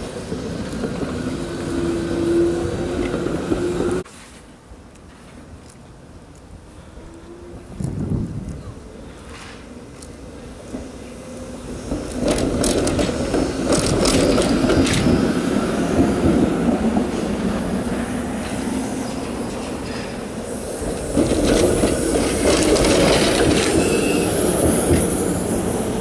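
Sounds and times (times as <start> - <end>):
streetcar wheels rumbling on rails: 0.0 - 4.1, 5.5 - 26.0
sharp clicks from track: 12.2 - 15.2.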